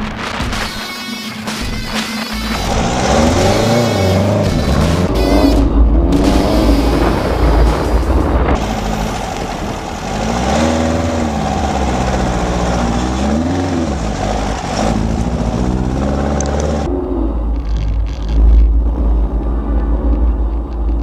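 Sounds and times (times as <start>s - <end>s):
car engine revving: 1.6s - 21.0s
deep muffled rumble: 4.5s - 9.9s, 13.9s - 21.0s.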